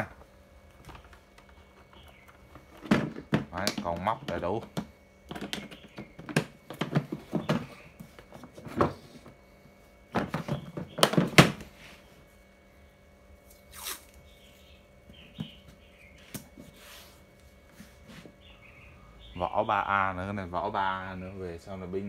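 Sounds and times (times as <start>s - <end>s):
masking tape ripping off roll: 13.5s - 14.2s.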